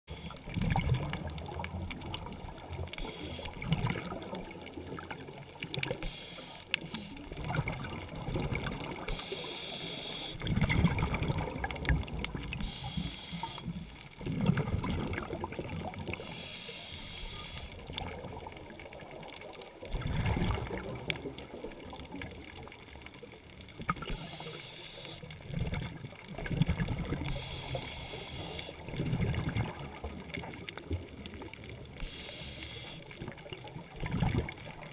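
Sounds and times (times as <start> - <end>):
bubbling exhale underwater: 0.1 - 6.0, 7.2 - 9.4, 10.3 - 13.1, 13.7 - 16.3, 19.8 - 22.8, 25.4 - 31.9, 33.1 - 34.9
hissing regulator inhale: 2.9 - 3.8, 5.9 - 7.3, 9.1 - 10.4, 12.6 - 13.9, 16.1 - 17.8, 24.0 - 25.4, 27.2 - 28.9, 32.0 - 33.2.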